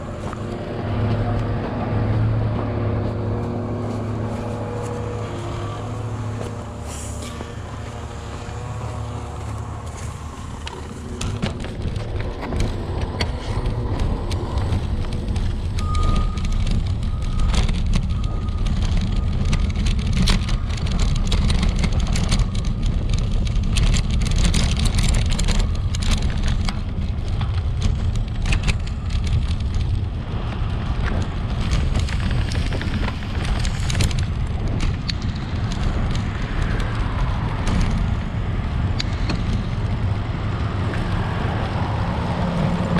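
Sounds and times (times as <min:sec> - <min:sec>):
bicycle rattling over bumps: 0:00.0 - 0:42.9
bicycle tyre rumble: 0:00.0 - 0:42.9
wind on microphone: 0:00.0 - 0:42.9.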